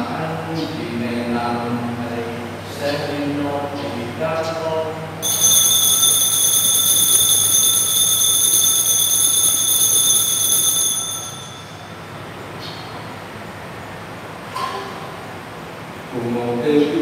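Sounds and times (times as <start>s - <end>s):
altar bells ringing: 5.2s - 12.7s.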